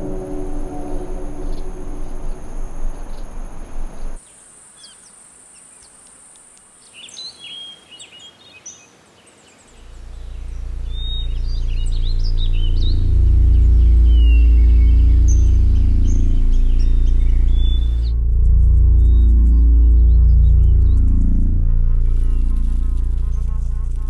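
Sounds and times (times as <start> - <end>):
low droning music: 0.0 - 4.2, 9.8 - 24.0
low rumble: 0.0 - 4.2, 9.8 - 24.0
birds chirping: 0.0 - 6.0, 6.8 - 24.0
high insect whine: 0.0 - 7.3, 9.7 - 24.0.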